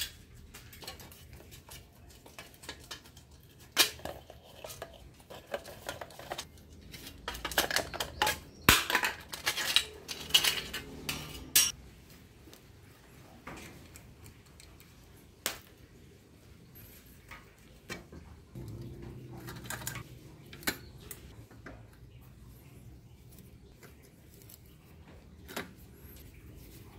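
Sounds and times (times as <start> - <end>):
metal brake parts clinking: 7.2 - 11.7.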